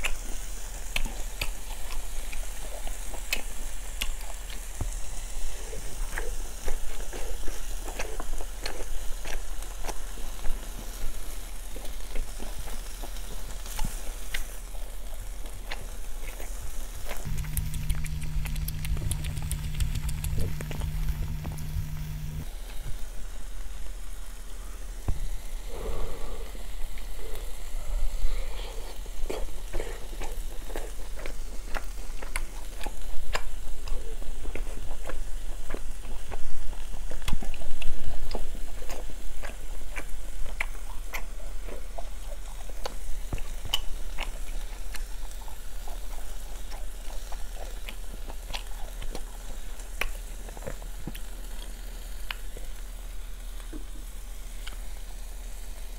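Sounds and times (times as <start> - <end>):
chewing: 0.0 - 22.5, 25.7 - 52.8, 53.6 - 55.0
beef sizzling on grill pan: 0.0 - 28.4, 49.6 - 55.9
fat crackling pops: 17.1 - 22.5.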